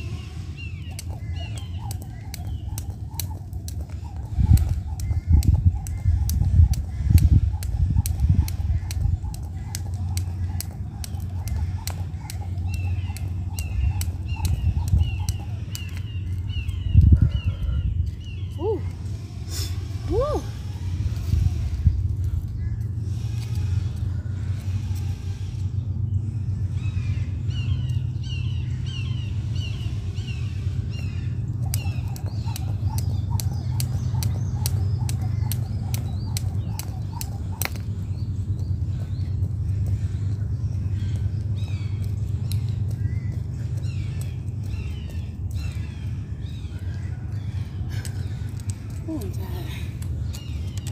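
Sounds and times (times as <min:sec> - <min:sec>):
low rumble: 0:00.0 - 0:50.9
jump rope slapping concrete: 0:00.8 - 0:17.2, 0:31.5 - 0:50.9.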